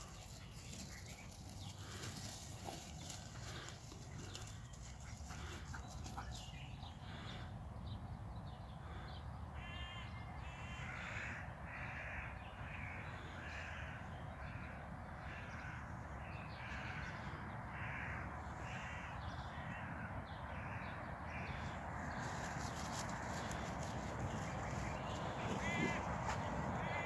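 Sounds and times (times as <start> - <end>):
crow cawing: 8.8 - 21.7, 25.0 - 27.0.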